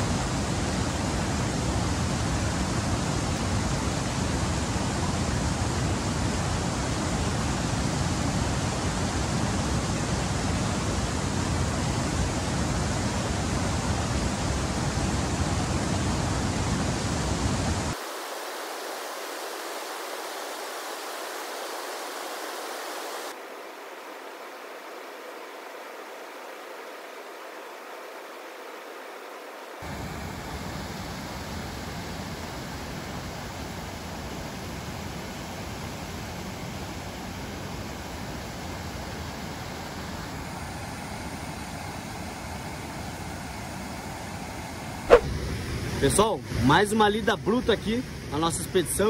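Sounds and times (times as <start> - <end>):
river rapids rushing: 0.0 - 32.9.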